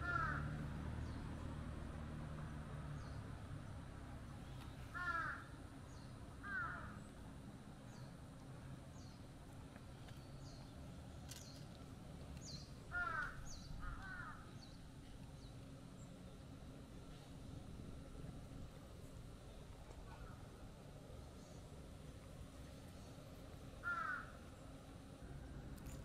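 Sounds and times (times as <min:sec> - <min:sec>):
crow cawing: 0:00.0 - 0:00.5, 0:04.9 - 0:05.5, 0:06.4 - 0:07.0, 0:12.9 - 0:14.5, 0:23.8 - 0:24.4.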